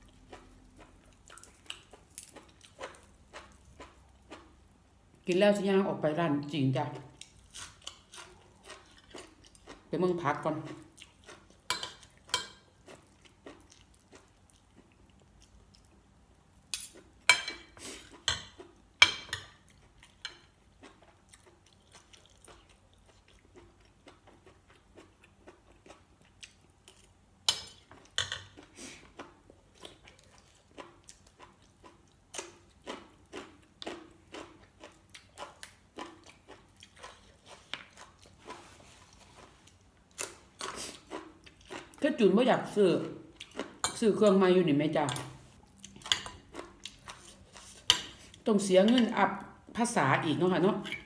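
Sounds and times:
close chewing: 0:00.0 - 0:04.5, 0:07.0 - 0:09.9, 0:10.6 - 0:16.0, 0:20.8 - 0:27.2, 0:28.0 - 0:42.0.

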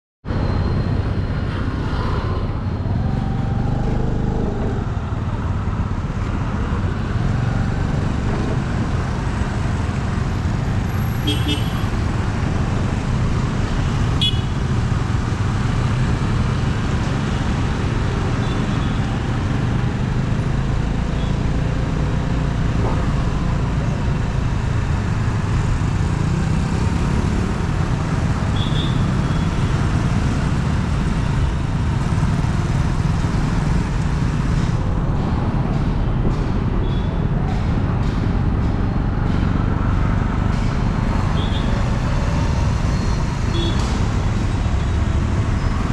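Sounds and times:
traffic rumble: 0:00.2 - 0:45.9.

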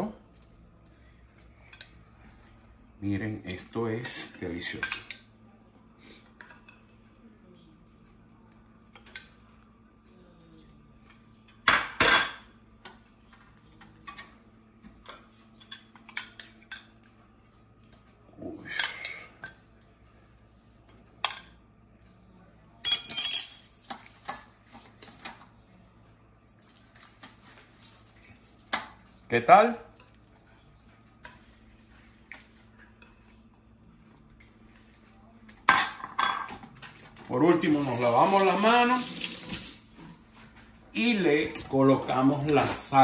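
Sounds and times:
metal spoon clinking on glass bowl: 0:22.8 - 0:23.6.

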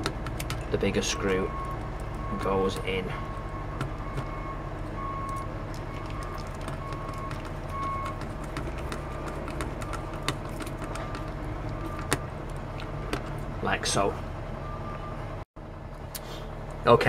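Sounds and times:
small clicks and taps: 0:00.0 - 0:00.7, 0:05.2 - 0:12.2.

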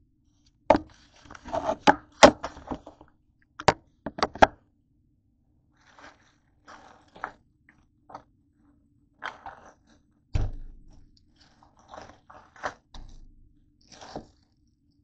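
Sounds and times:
crunching and crackling: 0:00.7 - 0:04.4, 0:05.8 - 0:08.3, 0:09.1 - 0:15.0
heavy thump: 0:10.4 - 0:11.0.

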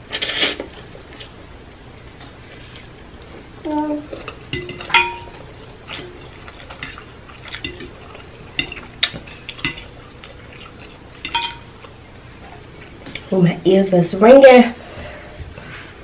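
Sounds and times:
fork clinking on glass dish: 0:04.5 - 0:11.9.

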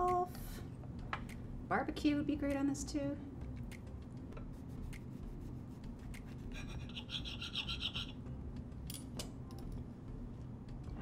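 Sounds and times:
knife sawing through bun: 0:06.4 - 0:08.1
knife scraping on plate: 0:06.4 - 0:08.2.

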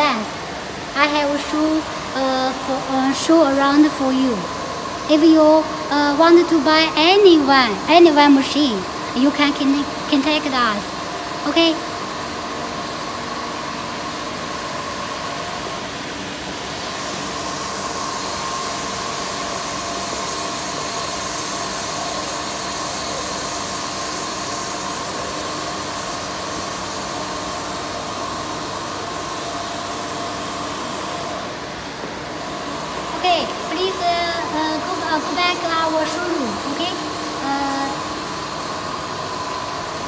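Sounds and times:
factory hall hum and hiss: 0:00.0 - 0:40.0.

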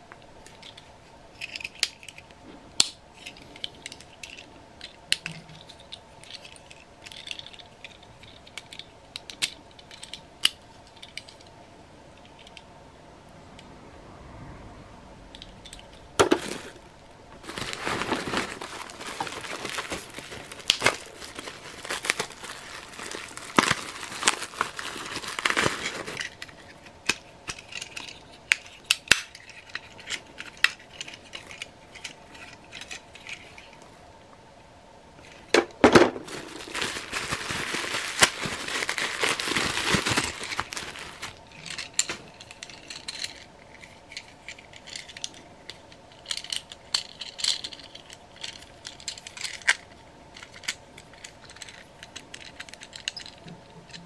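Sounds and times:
plastic toys clicking and clinking: 0:00.4 - 0:11.5, 0:17.4 - 0:33.8, 0:35.2 - 0:54.0
paper and bubble wrap crinkling: 0:16.2 - 0:28.1, 0:36.1 - 0:43.0.

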